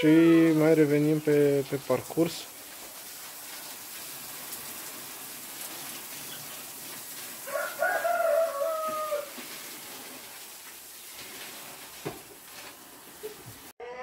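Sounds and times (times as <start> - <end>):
faint steady hiss: 0.0 - 13.7
rooster crowing: 7.4 - 9.4.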